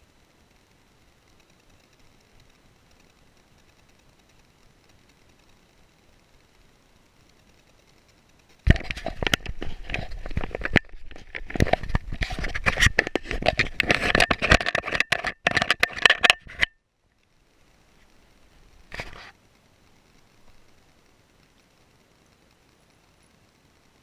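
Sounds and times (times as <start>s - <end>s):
camera mount rubbing against fur: 8.7s - 16.8s, 18.9s - 19.3s.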